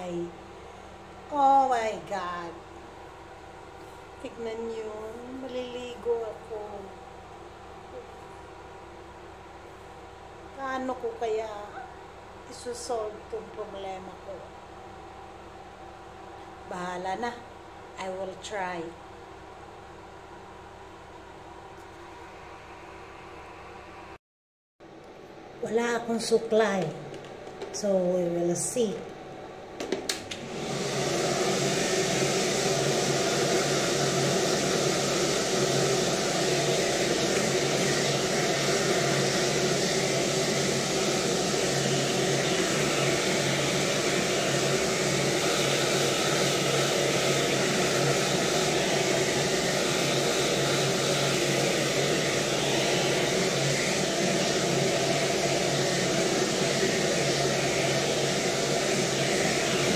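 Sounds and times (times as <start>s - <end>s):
hair dryer blowing: 29.8s - 59.9s.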